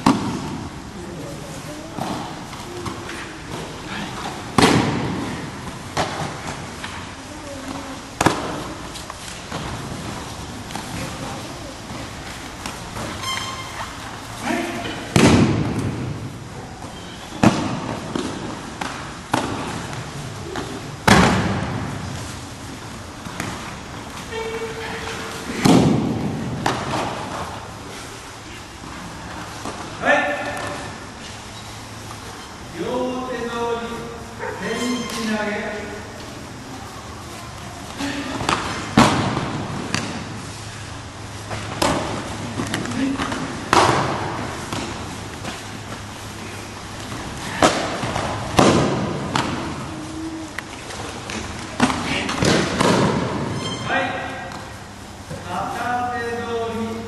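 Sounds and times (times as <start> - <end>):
bodies slapping onto mat: 2.0 - 7.0, 14.8 - 16.2, 25.4 - 27.7.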